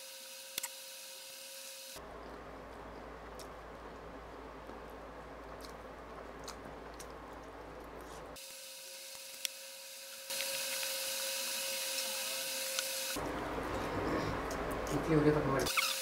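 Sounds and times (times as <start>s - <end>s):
man chewing food: 2.0s - 8.4s, 13.2s - 15.0s.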